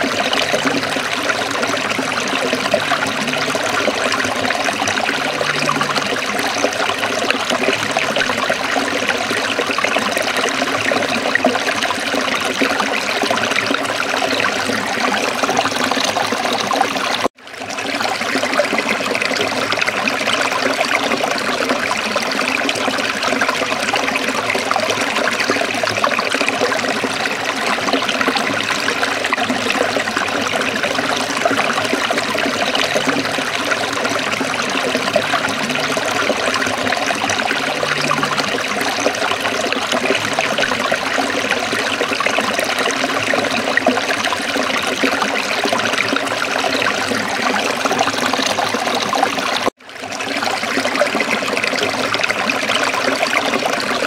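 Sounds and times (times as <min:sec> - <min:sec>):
stream babbling over rocks: 0:00.0 - 0:54.0.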